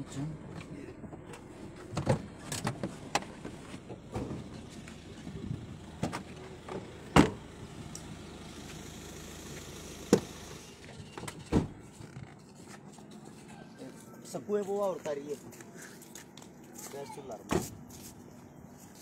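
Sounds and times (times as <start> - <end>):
car doors opening and shutting: 0.6 - 7.7, 9.4 - 12.4.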